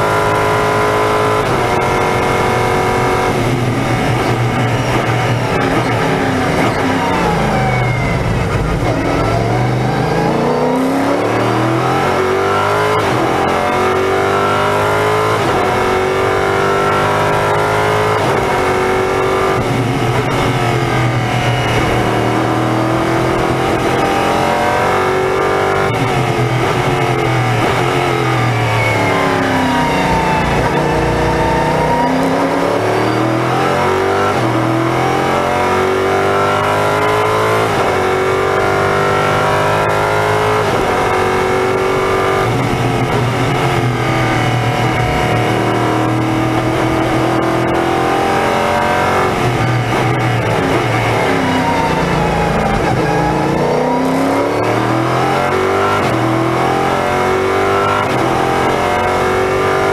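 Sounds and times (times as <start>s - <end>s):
racing car engine revving through gears: 0.0s - 59.9s.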